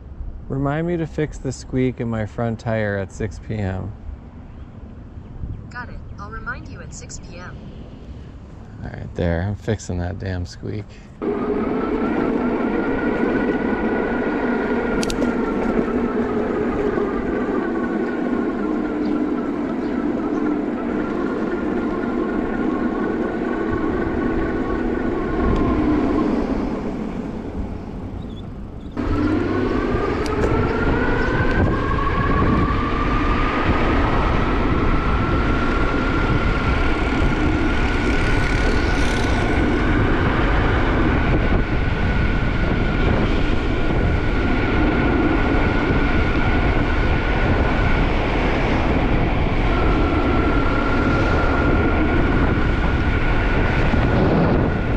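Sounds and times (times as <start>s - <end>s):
low rumble of riding noise: 0.0s - 54.9s
electric motor whining: 11.2s - 27.4s, 28.9s - 46.6s.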